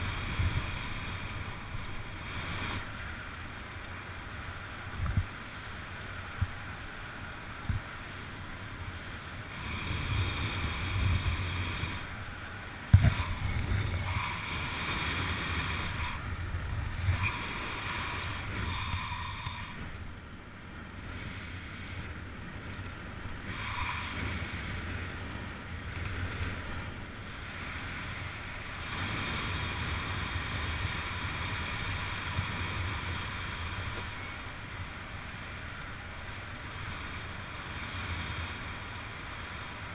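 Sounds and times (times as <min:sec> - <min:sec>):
wind rushing over microphone: 0:00.0 - 0:03.3, 0:09.5 - 0:20.2.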